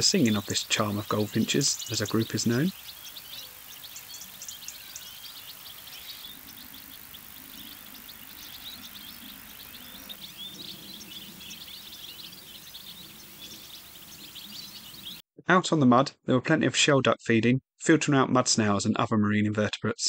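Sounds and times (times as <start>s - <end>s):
goldfinches twittering: 0.0s - 15.2s
low background noise: 0.0s - 15.2s.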